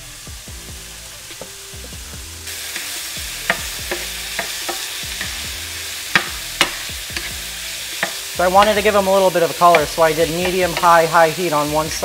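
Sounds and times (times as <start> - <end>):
meat sizzling in a frying pan: 0.0 - 12.0
spatula clicking against pan: 6.1 - 7.4, 8.0 - 8.2.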